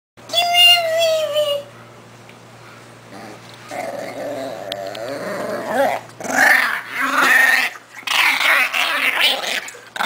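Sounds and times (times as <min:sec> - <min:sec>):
small dog growling: 0:03.1 - 0:10.0.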